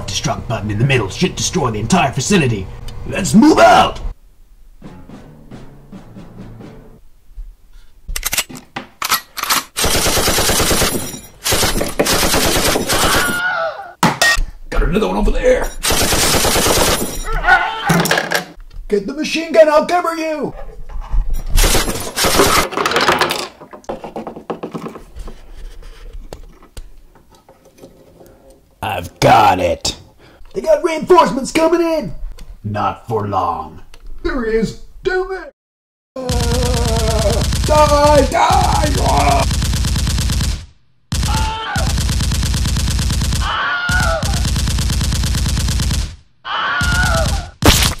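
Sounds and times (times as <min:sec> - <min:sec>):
machine-gun-like burst: 0:09.8 - 0:13.4, 0:15.8 - 0:17.1, 0:21.6 - 0:22.7, 0:36.3 - 0:43.6, 0:44.3 - 0:46.2
falling wail: 0:12.9 - 0:14.0, 0:17.2 - 0:18.1, 0:36.2 - 0:39.5, 0:41.2 - 0:42.0, 0:43.4 - 0:44.5, 0:46.4 - 0:47.6
plastic figures knocking on wood: 0:22.6 - 0:25.1.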